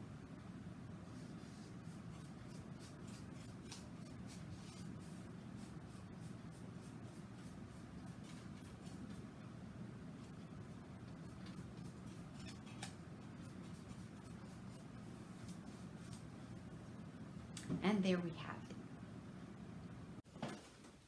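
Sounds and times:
low room hum: 0.0 - 21.0
paintbrush strokes on canvas: 1.0 - 9.4, 13.1 - 17.0.

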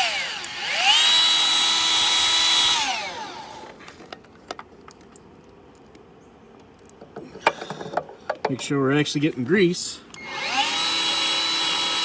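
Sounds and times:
grease gun motor whining: 0.0 - 3.8, 10.1 - 12.0.

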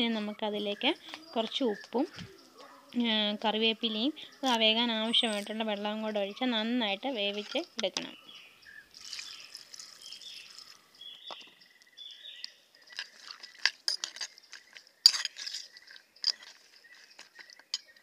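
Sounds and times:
water pouring into a pot: 8.9 - 10.8
seeds clattering against a pot: 8.9 - 11.6, 12.4 - 18.0.

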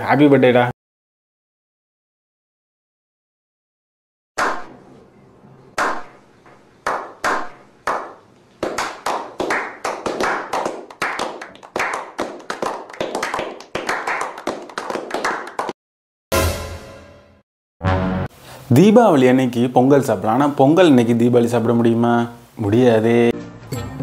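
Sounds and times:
men clapping: 6.8 - 15.8.

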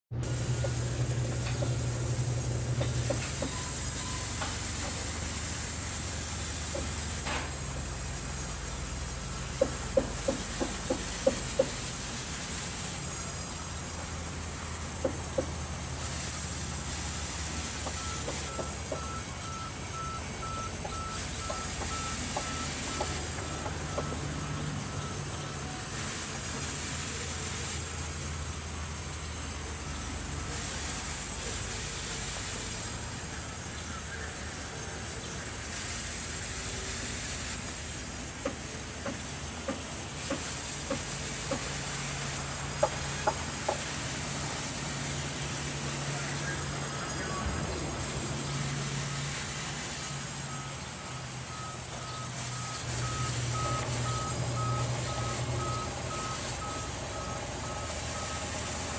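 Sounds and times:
band saws humming and whining: 0.1 - 58.9
timber knocking: 9.6 - 11.8, 15.0 - 15.6.

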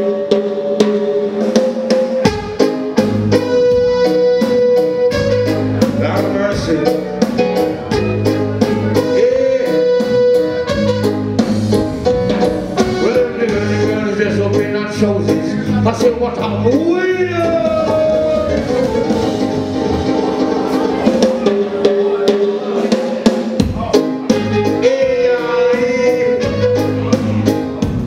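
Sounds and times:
electric guitar: 0.0 - 16.7
bass line: 0.0 - 28.0
drum kit beat: 0.0 - 28.0
keyboard notes: 0.0 - 28.0.

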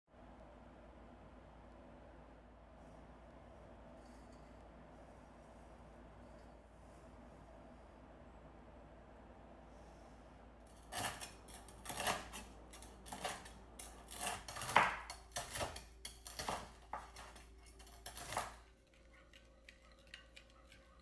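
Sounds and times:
fork whisking in ceramic bowl: 10.7 - 21.0
knife chopping on wooden board: 10.9 - 18.6.

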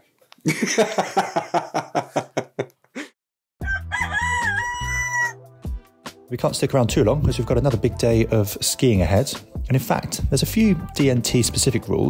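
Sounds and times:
rooster crowing: 3.6 - 5.5.

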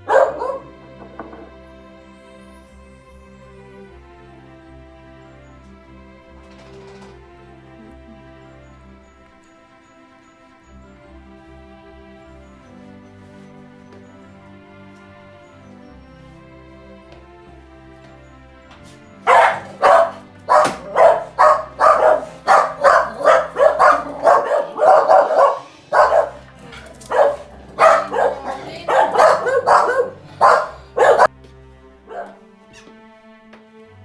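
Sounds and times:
dog barking: 0.0 - 0.8, 19.2 - 31.3, 32.1 - 32.4
soft background music: 0.0 - 34.0.

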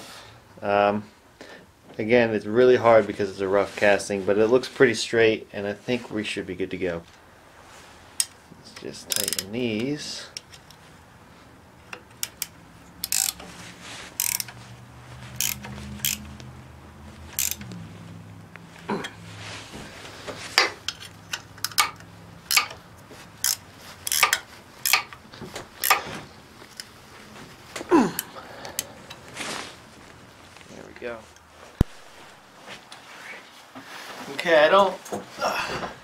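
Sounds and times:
metal clicks and clinks: 9.1 - 9.5, 20.8 - 22.8
ratcheting wrench clicking: 9.1 - 9.6, 11.9 - 13.5, 14.2 - 14.6, 15.4 - 16.4, 17.3 - 17.8, 20.8 - 22.8, 23.4 - 25.2, 25.8 - 26.0.

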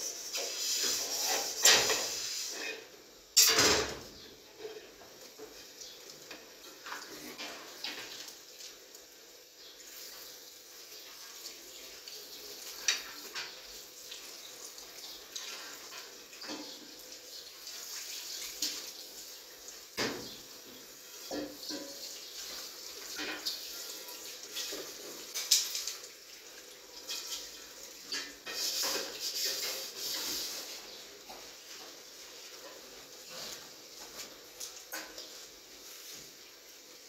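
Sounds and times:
metal cookware clanking: 3.4 - 4.1, 21.2 - 22.3, 23.0 - 25.9, 27.0 - 30.4
tap water running into sink: 9.9 - 37.0.

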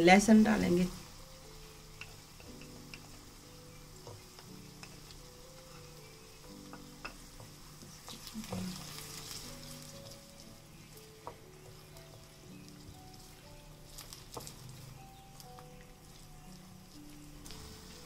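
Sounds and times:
onions sizzling in hot fat: 0.0 - 18.0.

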